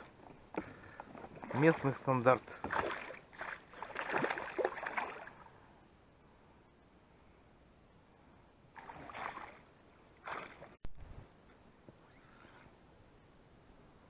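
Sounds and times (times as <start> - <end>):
fish splashing in water: 2.6 - 5.4, 10.2 - 10.8.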